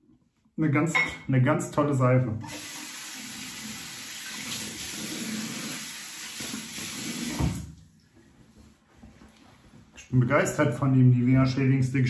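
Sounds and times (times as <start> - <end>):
tap running into sink: 4.3 - 7.7.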